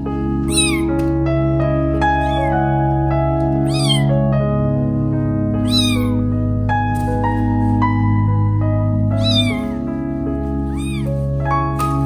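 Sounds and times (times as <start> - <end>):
background music with sustained notes: 0.0 - 12.0
kitten mewing: 0.4 - 1.0, 2.1 - 2.6, 3.6 - 4.2, 5.6 - 6.3, 9.1 - 9.8, 10.7 - 11.2.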